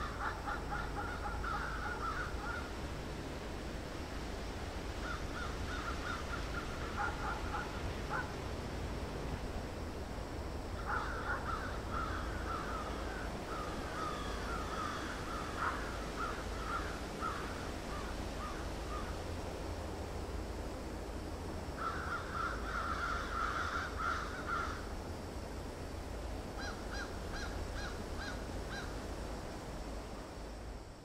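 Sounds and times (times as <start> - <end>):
crows cawing: 0.0 - 2.7, 5.0 - 8.3, 10.8 - 19.1, 21.8 - 24.9.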